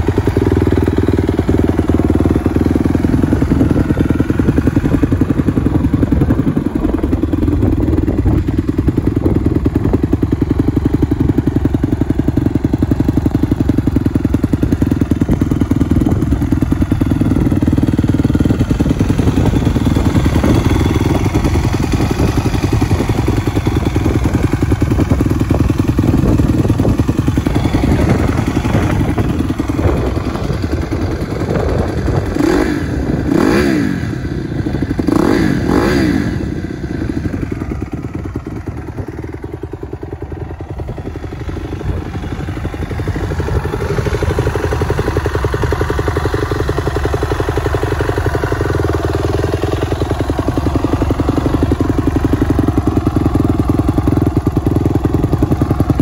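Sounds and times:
motorcycle engine idling and revving: 0:00.0 - 0:56.0.

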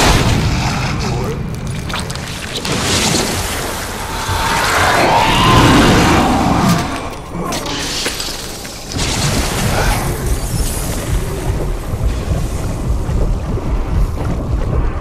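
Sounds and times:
steady low rumble: 0:03.6 - 0:07.5, 0:09.9 - 0:15.0.

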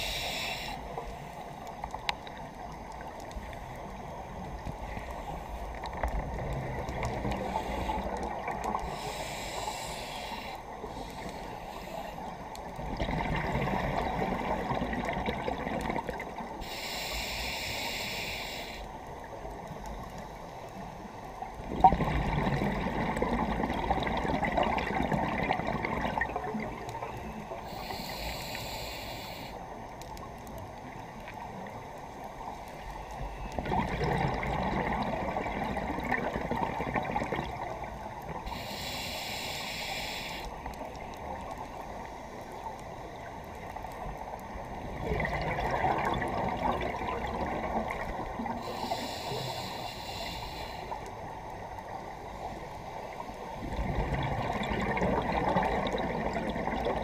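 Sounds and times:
diver inhaling through regulator: 0:00.0 - 0:00.9, 0:08.8 - 0:12.2, 0:16.6 - 0:18.9, 0:27.7 - 0:29.6, 0:38.5 - 0:40.6, 0:48.6 - 0:51.0
exhaled bubbles rushing: 0:12.8 - 0:16.2, 0:21.6 - 0:26.8, 0:33.6 - 0:37.7, 0:44.8 - 0:48.6, 0:53.6 - 0:57.0.

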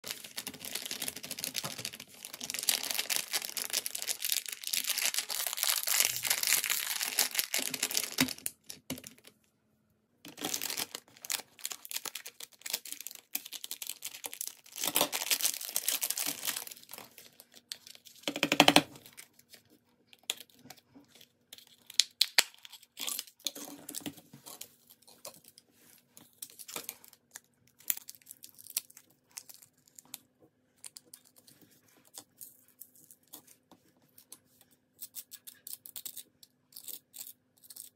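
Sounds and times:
plastic wrapper crinkling: 0:00.0 - 0:09.4, 0:10.3 - 0:19.6, 0:26.3 - 0:30.2.

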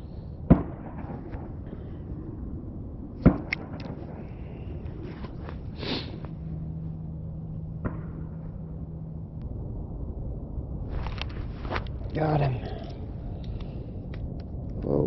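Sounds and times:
faint low hum: 0:00.0 - 0:15.0
clothing handling noise: 0:10.9 - 0:12.9.

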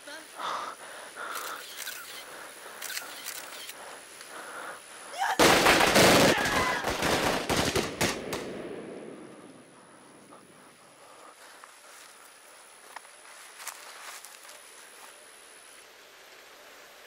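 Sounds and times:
automatic gunfire: 0:05.4 - 0:08.9.

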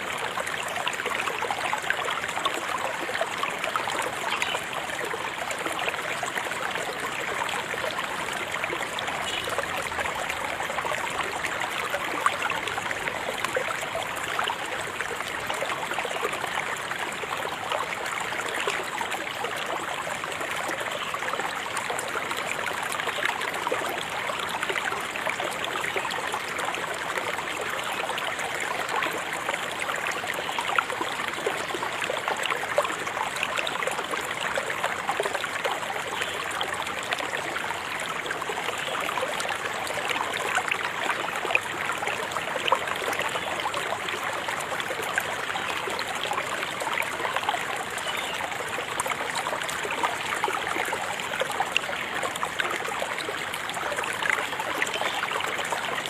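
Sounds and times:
river water babbling: 0:00.0 - 0:56.0.

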